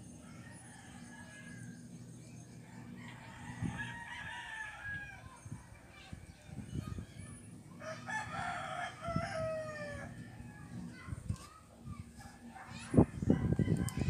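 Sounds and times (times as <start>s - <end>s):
steady low hum: 0.0s - 14.0s
rooster crowing: 2.8s - 5.3s, 7.8s - 10.7s.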